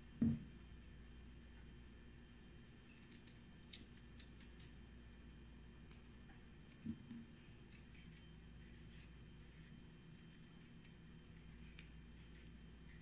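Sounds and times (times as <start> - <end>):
piece dropping on cutting board: 0.2 - 0.5.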